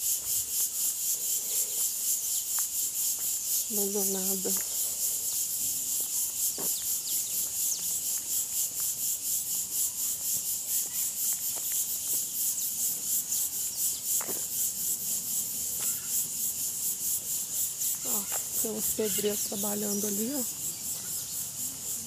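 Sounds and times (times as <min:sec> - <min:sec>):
insects chirring: 0:00.0 - 0:22.0
faint ticks: 0:00.5 - 0:03.7.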